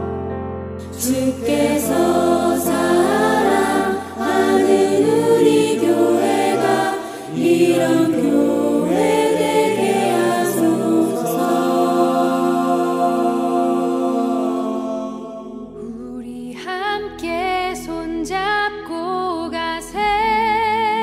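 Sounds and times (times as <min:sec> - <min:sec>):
choir singing worship song: 0:00.8 - 0:16.7.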